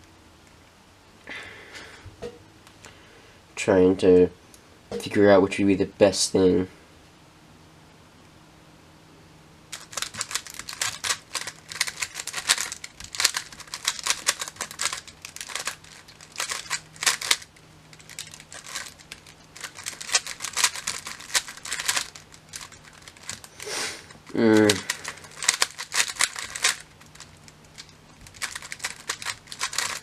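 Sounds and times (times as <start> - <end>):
plastic puzzle cube clicking: 9.8 - 23.6, 24.6 - 30.0.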